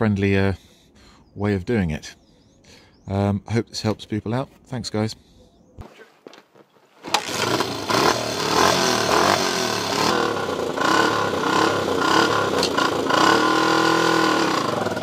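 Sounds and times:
motorcycle engine revving: 7.0s - 15.0s.

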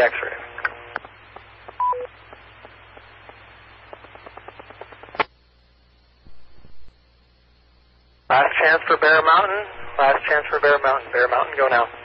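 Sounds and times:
radio static hiss: 0.0s - 12.0s
faint crackling clicks: 0.6s - 5.3s
sharp radio click: 0.6s - 5.3s.

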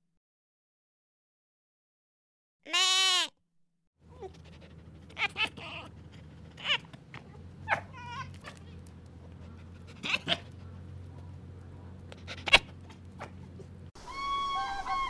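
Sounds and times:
goat bleating: 2.7s - 3.3s, 5.1s - 6.0s, 6.6s - 9.0s
low steady hum: 4.0s - 13.9s
fox yelping: 4.1s - 11.3s, 12.1s - 13.4s.

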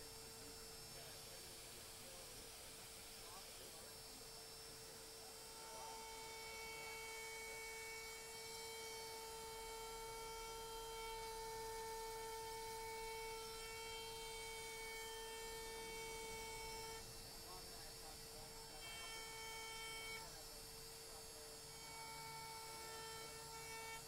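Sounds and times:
trim router high whine: 0.0s - 24.0s.

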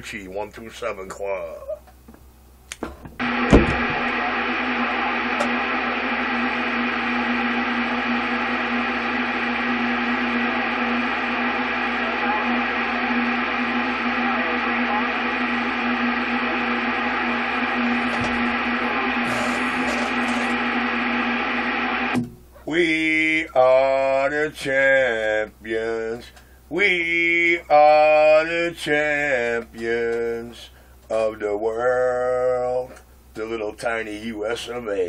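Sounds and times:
radio click: 2.7s - 6.3s, 18.0s - 22.3s
low hum: 2.8s - 26.2s
radio static hiss: 3.2s - 22.2s.

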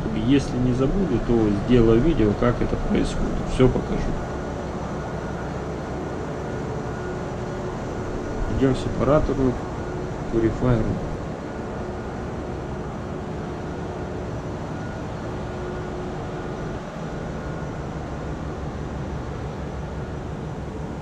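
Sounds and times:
engine room low rumble: 0.0s - 21.0s
faint machinery hums: 0.0s - 21.0s.

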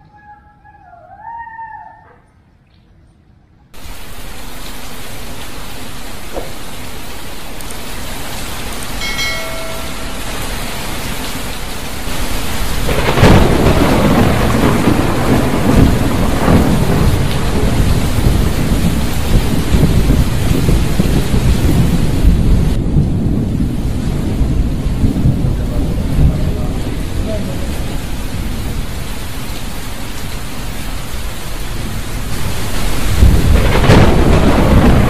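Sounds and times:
heavy rain pouring: 3.8s - 35.0s
thunder cracking and rumbling: 9.9s - 29.2s, 31.6s - 35.0s.

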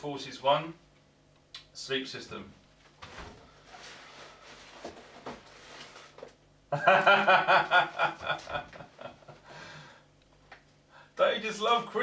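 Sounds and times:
man laughing loudly: 6.7s - 9.5s.

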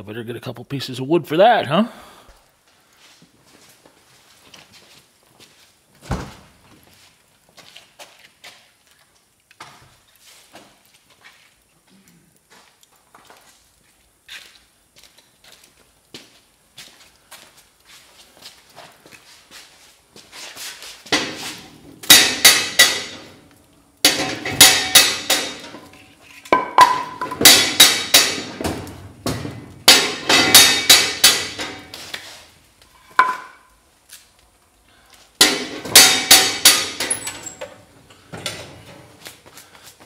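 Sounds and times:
logs knocking against steel stove: 21.1s - 23.4s, 24.0s - 32.0s, 33.1s - 33.6s, 35.4s - 37.6s.

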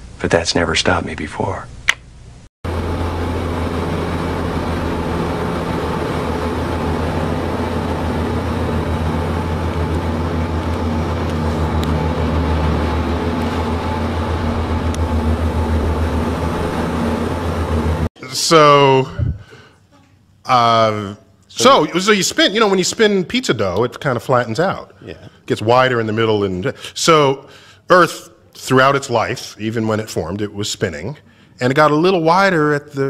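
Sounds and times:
aircraft engines droning: 2.6s - 18.1s.

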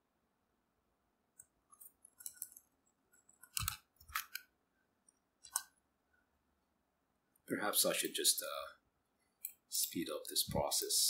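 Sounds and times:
keyboard typing clicks: 3.3s - 4.4s.

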